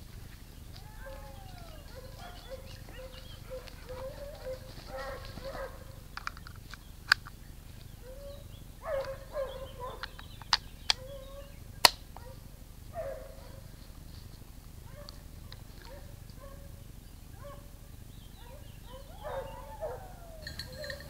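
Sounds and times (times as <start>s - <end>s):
dogs barking and yelping: 0.7s - 6.2s, 7.9s - 14.0s, 14.8s - 21.0s
sharp clicks: 6.1s - 7.4s, 9.9s - 11.2s, 11.8s - 12.3s.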